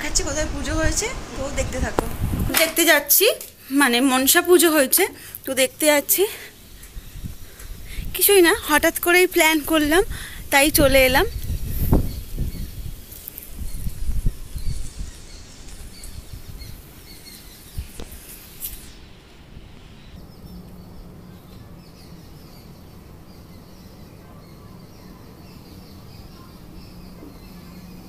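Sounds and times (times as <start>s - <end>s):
faint bird chirps: 11.2s - 28.0s.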